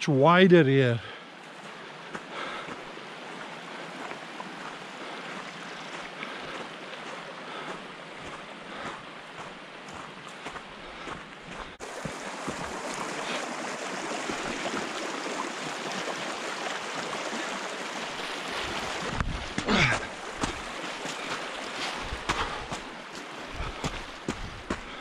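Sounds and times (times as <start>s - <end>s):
water rushing over stones: 11.6s - 25.0s.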